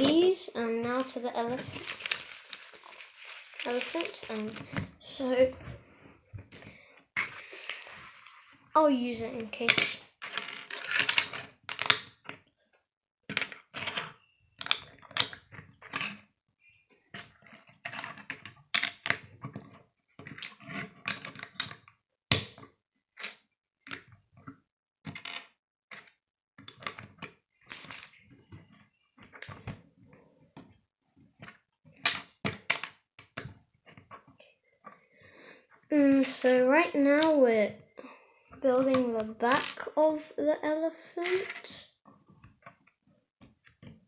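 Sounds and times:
plastic bricks clicking: 9.7 - 12.3, 13.3 - 16.2, 20.2 - 22.4.

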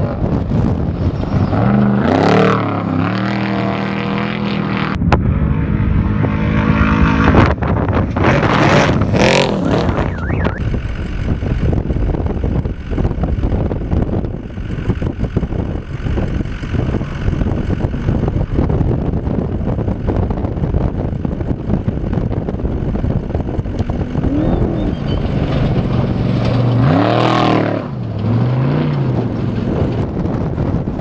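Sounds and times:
wind-like rumble: 0.0 - 31.0
truck engine revving past: 8.2 - 10.7, 23.9 - 30.0.

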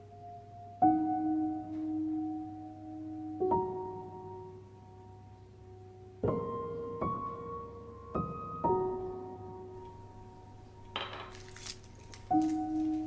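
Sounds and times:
slow soft piano notes: 0.0 - 13.0
keys jingling: 11.0 - 13.0.

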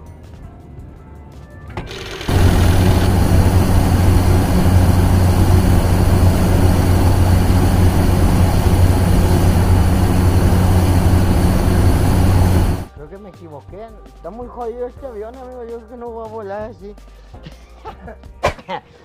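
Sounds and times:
aircraft engine roar: 1.9 - 12.9.

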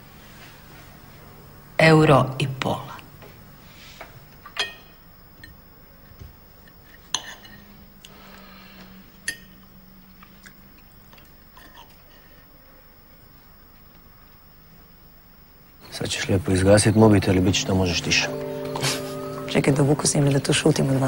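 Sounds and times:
cutlery clinking on plates: 4.5 - 5.6, 6.8 - 7.8.

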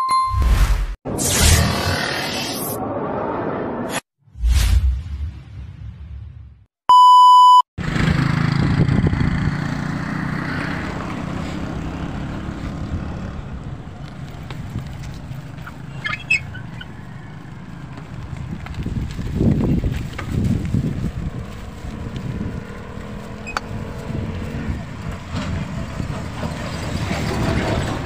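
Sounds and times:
loud beep tone: 0.0 - 2.3, 6.9 - 7.7
motorbike engine running: 7.8 - 13.7
wind on microphone: 8.0 - 9.6, 18.1 - 26.5.

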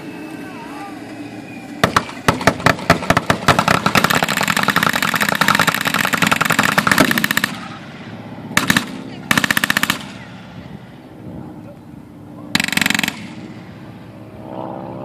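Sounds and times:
vehicle engine running: 0.0 - 15.0
machine gun firing: 1.8 - 7.8, 8.6 - 10.2, 12.5 - 13.5.

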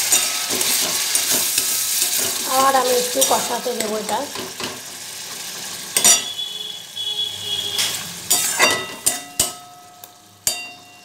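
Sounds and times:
metal spatula scraping a pan: 0.0 - 4.0, 6.0 - 6.4, 7.4 - 9.8
spice paste sizzling in a pan: 0.0 - 11.0
spatula clinking on pan: 6.0 - 6.4, 7.8 - 11.0.

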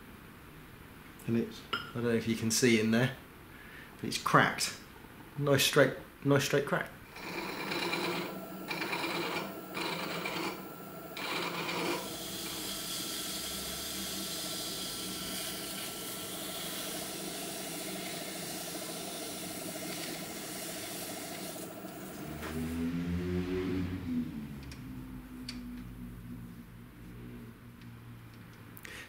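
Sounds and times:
lathe running hum: 7.1 - 23.3
sandpaper rubbing on spinning steel: 7.2 - 22.8.

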